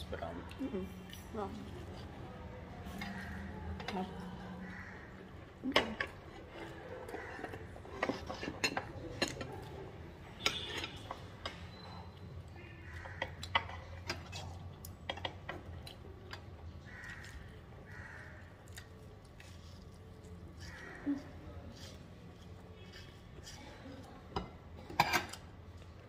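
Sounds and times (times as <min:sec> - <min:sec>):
cutlery clinking on plates: 0:07.4 - 0:09.7, 0:24.4 - 0:25.5.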